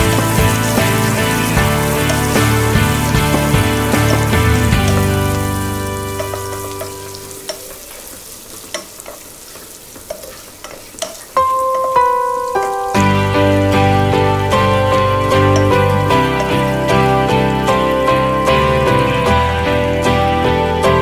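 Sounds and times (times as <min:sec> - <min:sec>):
background music: 0:00.0 - 0:07.7, 0:11.4 - 0:21.0
onions sizzling in oil: 0:00.0 - 0:21.0
spatula knocking against pan: 0:01.6 - 0:05.3, 0:06.1 - 0:07.7.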